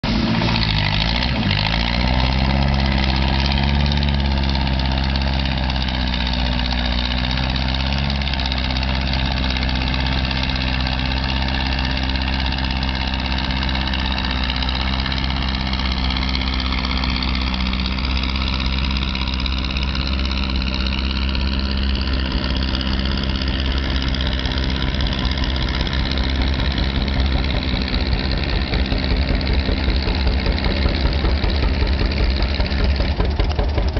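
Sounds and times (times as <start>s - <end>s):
tractor engine running under load: 0.0s - 33.9s.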